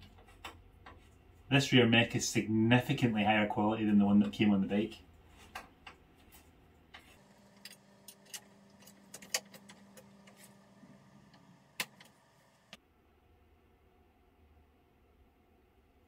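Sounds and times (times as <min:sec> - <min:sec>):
faint steady hum: 0:07.2 - 0:16.0.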